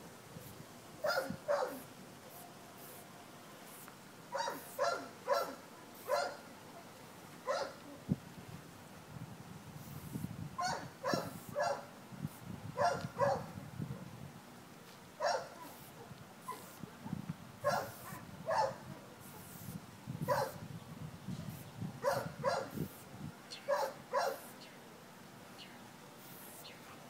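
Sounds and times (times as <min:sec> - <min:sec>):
dog barking: 0:01.0 - 0:01.9, 0:04.3 - 0:06.4, 0:07.5 - 0:07.8, 0:10.6 - 0:11.9, 0:12.8 - 0:13.5, 0:15.2 - 0:16.7, 0:17.6 - 0:18.9, 0:20.3 - 0:20.6, 0:22.0 - 0:22.8, 0:23.7 - 0:24.5.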